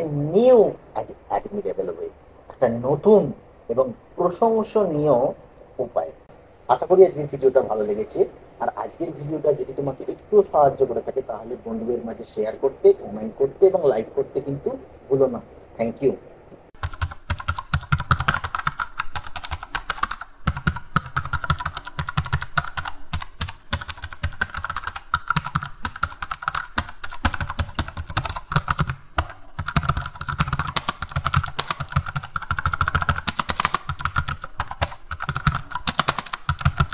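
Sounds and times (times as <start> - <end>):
rapid clicking and tapping: 16.8 - 36.9.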